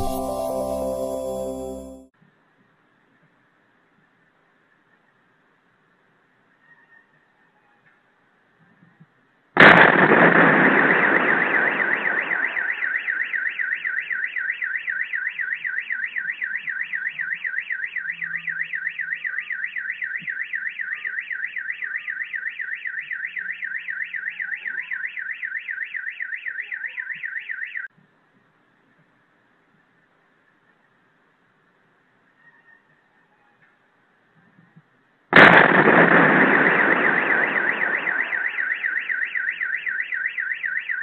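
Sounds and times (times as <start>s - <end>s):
explosion boom: 9.6s - 11.4s, 35.4s - 38.0s
car alarm warbling: 10.7s - 27.9s, 36.3s - 41.0s.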